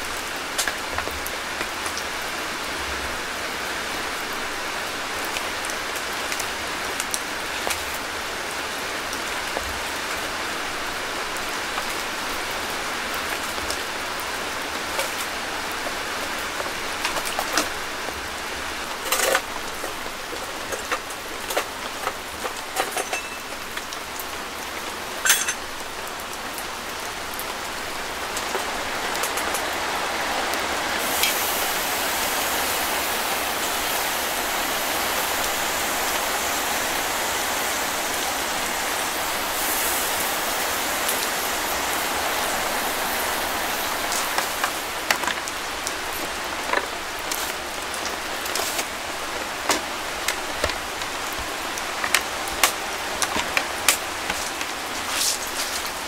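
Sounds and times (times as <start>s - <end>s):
rain on fabric roof: 0.0s - 56.0s
metal clanks and knocks: 25.2s - 25.6s
bright hiss: 30.1s - 46.4s.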